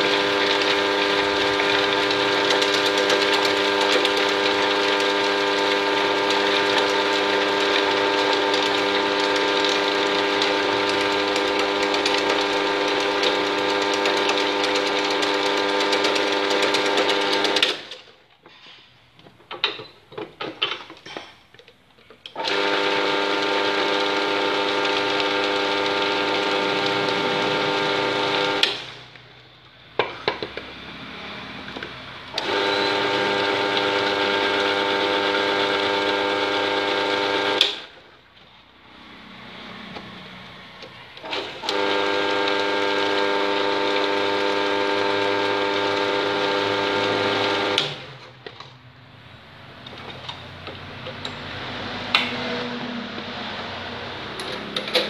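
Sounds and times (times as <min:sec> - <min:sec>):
drill press motor whining: 0:00.0 - 0:18.1, 0:22.2 - 0:29.3, 0:30.0 - 0:38.1, 0:40.8 - 0:48.6.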